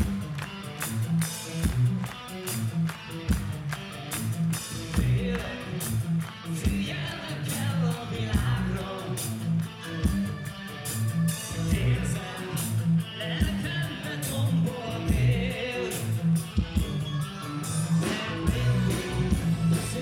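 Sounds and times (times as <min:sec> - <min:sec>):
live rock band playing: 0:00.0 - 0:20.0
man singing into microphone: 0:05.0 - 0:05.9, 0:06.6 - 0:09.3, 0:11.5 - 0:16.2.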